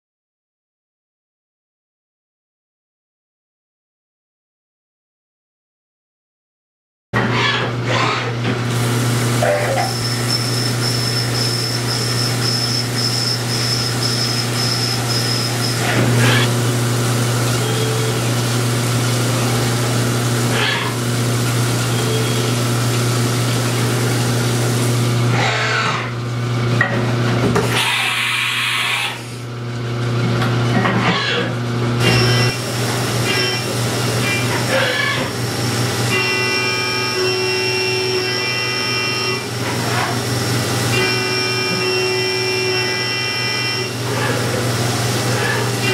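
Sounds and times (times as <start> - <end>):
milling machine hum: 7.2 - 45.9
high cutting whine: 9.3 - 25.3, 32.0 - 39.6, 40.9 - 44.2.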